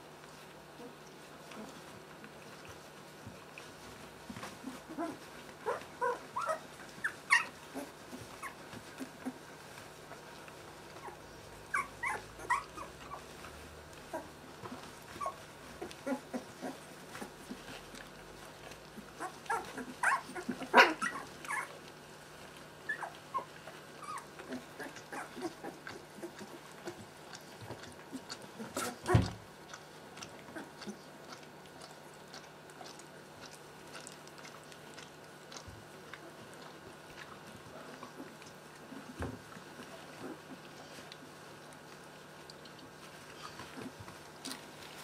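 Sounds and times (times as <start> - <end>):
puppies whimpering and squeaking: 3.5 - 29.4, 42.7 - 45.0.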